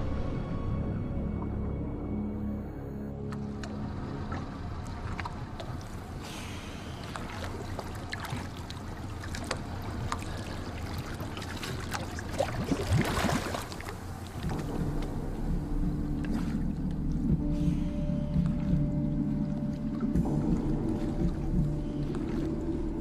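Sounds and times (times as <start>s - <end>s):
low steady music: 0.0s - 23.0s
water sloshing and splashing: 3.1s - 23.0s
knocks and drips: 14.3s - 23.0s.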